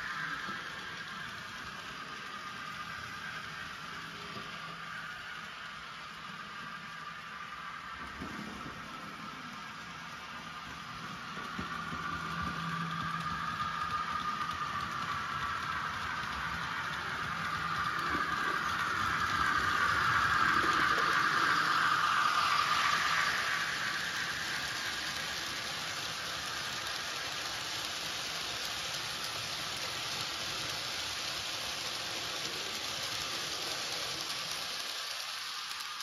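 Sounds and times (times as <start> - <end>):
model train steam sound: 0.0 - 36.0
wagons rattling on track: 10.8 - 36.0.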